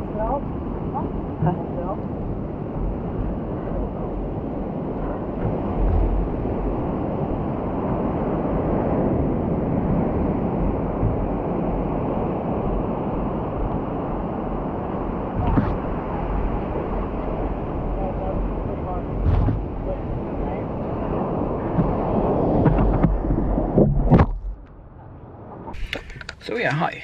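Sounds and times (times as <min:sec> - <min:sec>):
ocean surf: 0:00.0 - 0:27.0
wind buffeting microphone: 0:00.0 - 0:27.0
brief knock: 0:15.4 - 0:15.8, 0:19.2 - 0:19.7.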